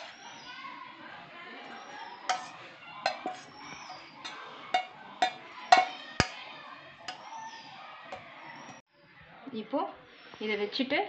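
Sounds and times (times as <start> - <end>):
steel bowl metallic clinks: 2.3 - 7.4.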